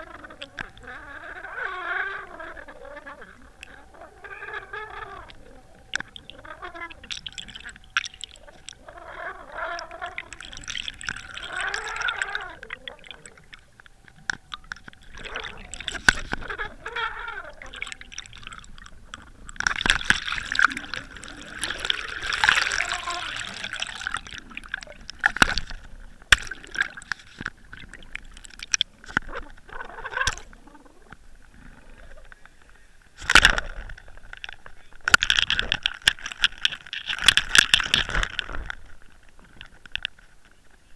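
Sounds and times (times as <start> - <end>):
water gurgling and bubbling: 0.0 - 32.3.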